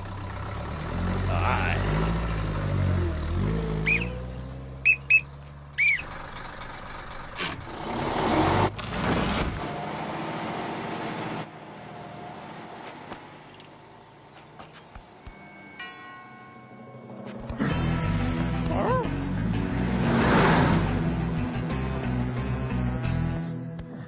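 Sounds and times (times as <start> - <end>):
truck engine pulling away: 0.0 - 13.4, 17.2 - 23.4
short squeaky chirps: 4.8 - 6.1.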